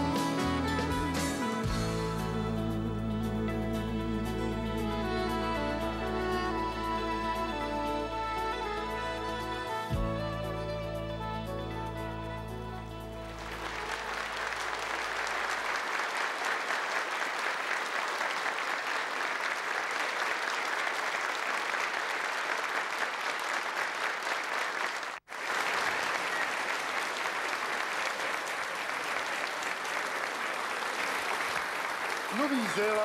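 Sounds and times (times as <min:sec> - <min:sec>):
audience applauding: 0:12.8 - 0:33.0.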